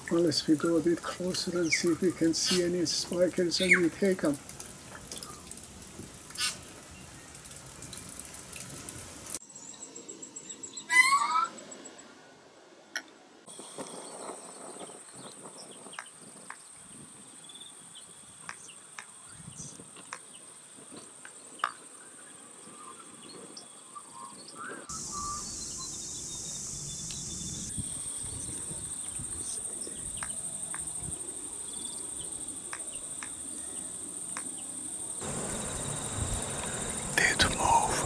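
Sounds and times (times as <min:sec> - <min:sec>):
insects pulsing chorus: 0:13.5 - 0:38.0.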